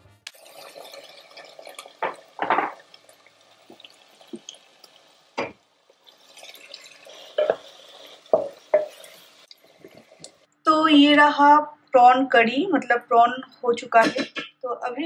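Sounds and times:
prawns sizzling in a pot: 0.3s - 10.5s
knocks and scrapes of stirring: 6.4s - 9.2s.

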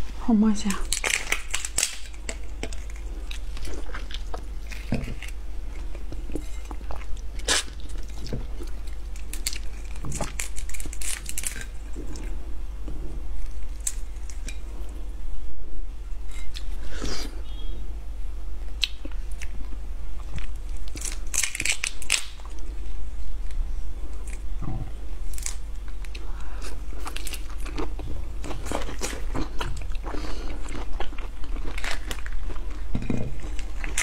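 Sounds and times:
low steady hum: 0.0s - 34.0s
prawn shell crackling and snapping: 0.8s - 12.3s, 13.4s - 14.6s, 20.2s - 24.5s, 25.2s - 34.0s.

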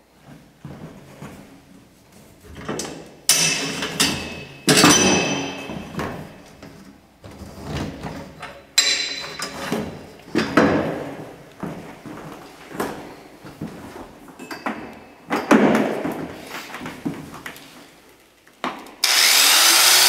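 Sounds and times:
metallic clanks and clatters: 7.9s - 10.8s.

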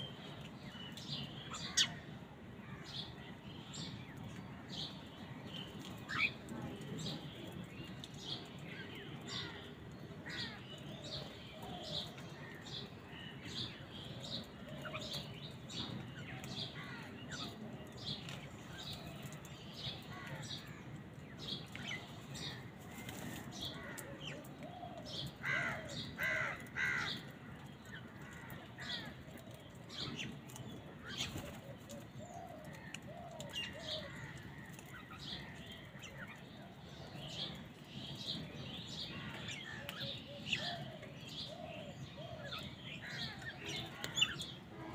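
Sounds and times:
flock of birds chirping: 0.0s - 44.9s
crows calling: 25.3s - 29.1s, 32.3s - 35.9s, 39.2s - 44.9s.

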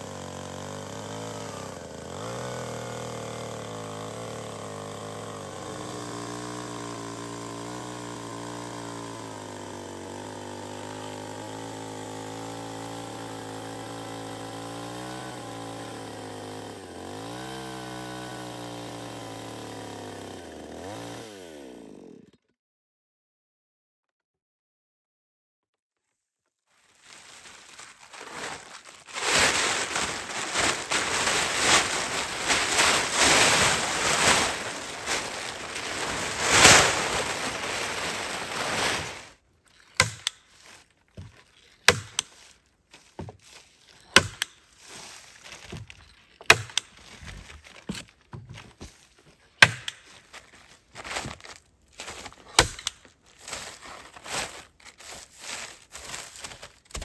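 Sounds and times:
plastic tarpaulin rustling: 26.7s - 57.0s.

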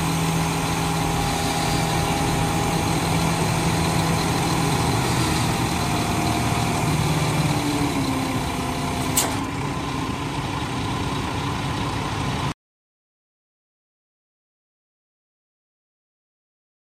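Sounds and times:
hydraulic arm steady tones: 0.0s - 12.5s
truck diesel engine rumble: 0.0s - 12.6s.

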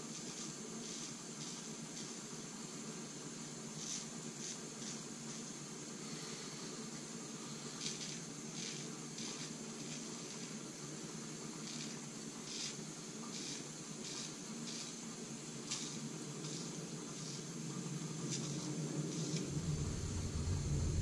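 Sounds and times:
razor scraping beard stubble: 0.2s - 2.2s, 7.8s - 10.6s, 11.6s - 15.0s, 15.6s - 17.5s
low hum: 19.2s - 21.0s.

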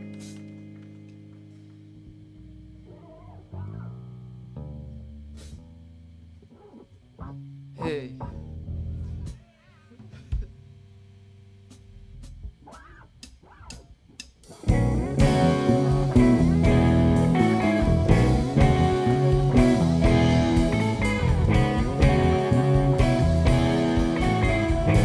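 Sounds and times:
live rock band: 0.0s - 1.8s, 12.6s - 25.0s.

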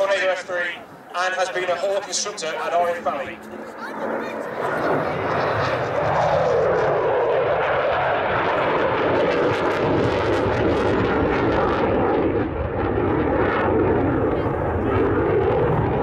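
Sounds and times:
jet engine roar with crackle: 0.0s - 16.0s.

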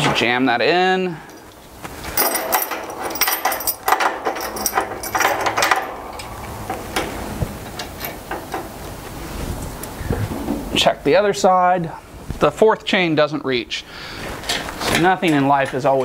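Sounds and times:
steel chains rattling and clinking: 2.1s - 8.8s.

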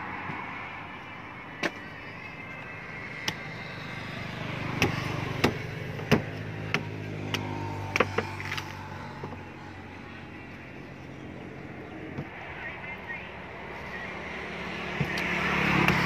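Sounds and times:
machete chopping fruit: 4.7s - 8.4s, 14.9s - 16.0s.

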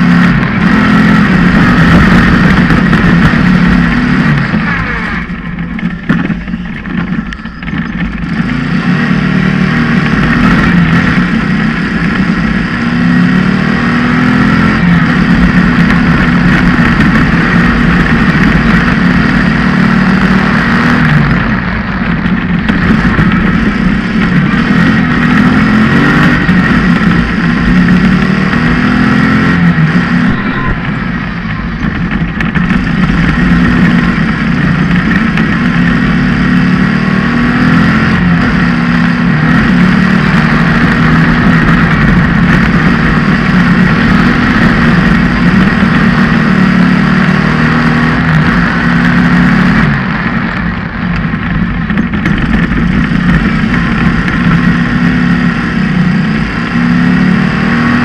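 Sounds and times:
buggy engine running hard: 0.0s - 58.0s
rattle of driving over dirt: 0.0s - 58.0s.

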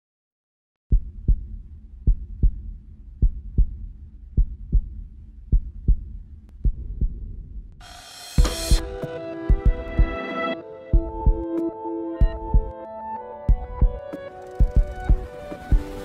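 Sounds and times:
heartbeat thumps: 0.9s - 7.8s, 8.4s - 10.2s, 10.9s - 11.6s, 12.2s - 12.7s, 13.5s - 14.0s, 14.6s - 16.0s.

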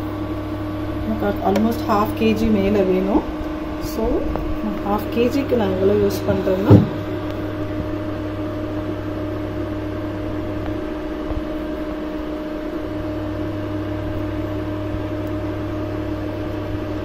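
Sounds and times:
constant whine: 0.0s - 17.0s
electrical hum: 0.0s - 17.0s.

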